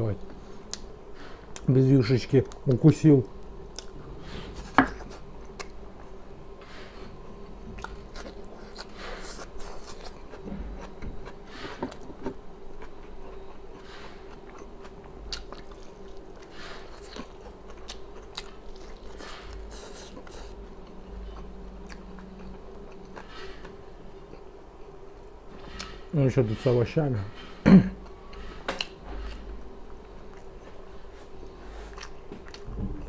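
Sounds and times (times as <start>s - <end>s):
faint steady hum: 0.0s - 33.0s
person chewing food: 3.7s - 6.2s, 6.9s - 26.0s, 28.0s - 33.0s
food crunching: 7.8s - 25.0s, 31.9s - 32.8s.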